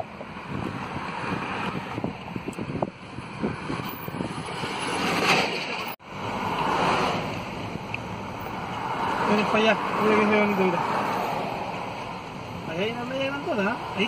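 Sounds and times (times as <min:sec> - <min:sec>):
wind rushing over microphone: 0:00.0 - 0:07.8
road noise: 0:00.0 - 0:14.0.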